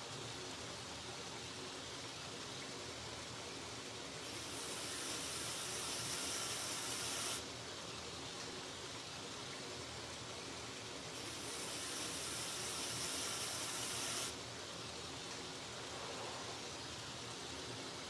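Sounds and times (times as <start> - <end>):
belt grinder hissing: 4.2 - 7.4, 11.2 - 14.4
grinding hiss on workpiece: 4.2 - 7.4, 11.2 - 14.4.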